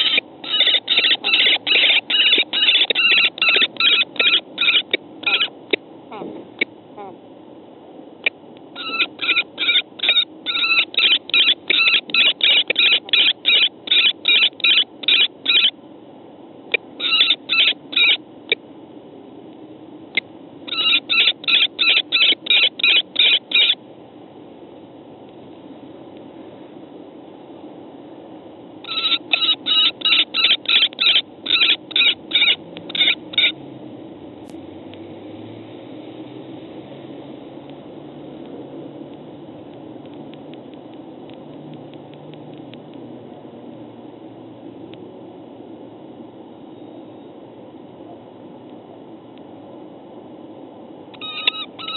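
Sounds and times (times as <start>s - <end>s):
kestrels calling: 0.0s - 5.8s, 8.2s - 15.8s, 16.8s - 18.2s, 20.2s - 23.8s, 28.8s - 33.6s, 51.2s - 51.9s.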